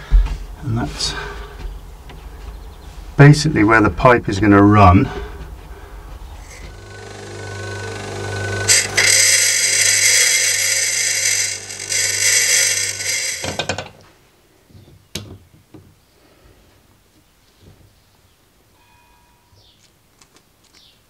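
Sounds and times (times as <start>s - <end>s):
bench grinder motor hum: 6.4s - 13.9s
metal grinding on wheel: 6.4s - 14.0s.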